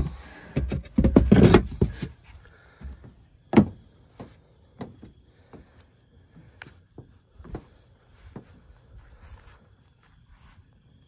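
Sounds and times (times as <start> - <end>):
wooden panels knocking: 2.8 - 5.1.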